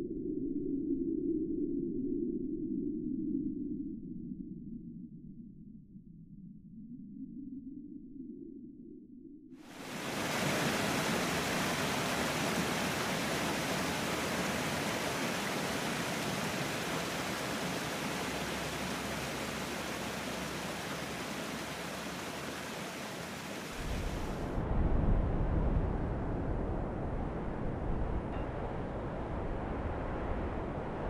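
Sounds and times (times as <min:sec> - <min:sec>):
waterfall rushing hiss: 0:09.7 - 0:24.5.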